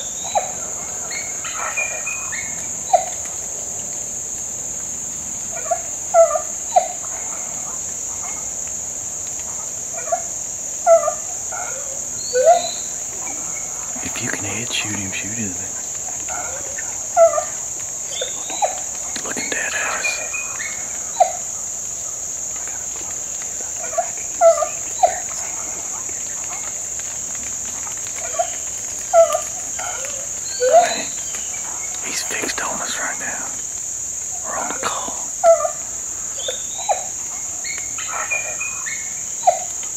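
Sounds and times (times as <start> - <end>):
high-pitched insect chorus: 0.0 - 39.9
short pitched calls: 13.9 - 21.4, 30.5 - 33.6.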